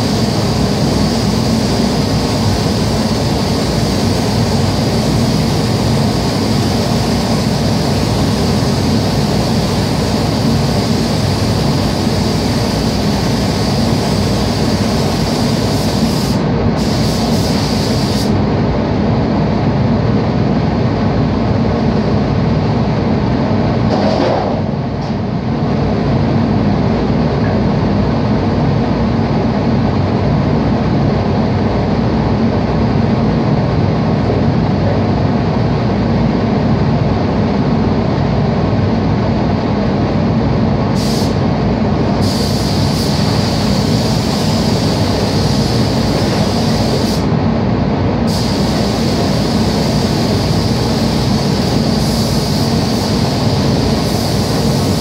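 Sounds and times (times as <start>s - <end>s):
spray gun hissing: 0.0s - 18.4s, 41.0s - 41.4s, 42.2s - 47.3s, 48.3s - 55.0s.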